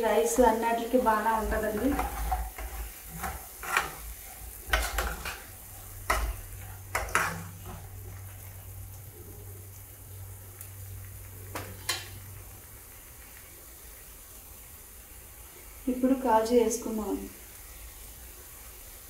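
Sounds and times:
paste sizzling: 0:00.0 - 0:19.0
spatula scraping frying pan: 0:00.2 - 0:08.6.

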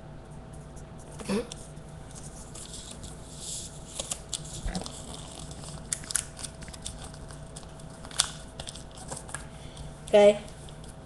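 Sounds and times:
faint steady hum: 0:00.0 - 0:11.0
paper folding and creasing: 0:02.1 - 0:09.4
paper snap: 0:05.8 - 0:09.4.

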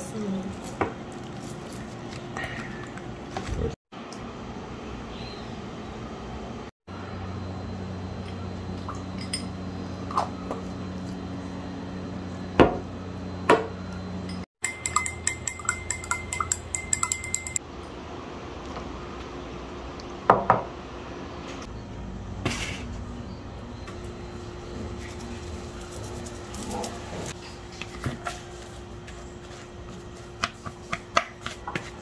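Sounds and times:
spoon clinking in glass: 0:14.3 - 0:17.6.

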